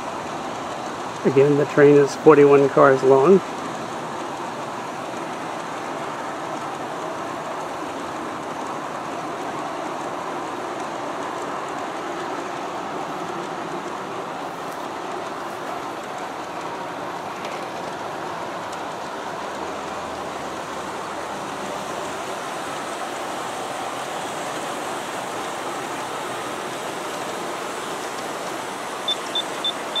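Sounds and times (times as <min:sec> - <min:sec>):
model train wheels rattling on rail: 0:00.0 - 0:28.8
short high beeps: 0:29.1 - 0:30.0.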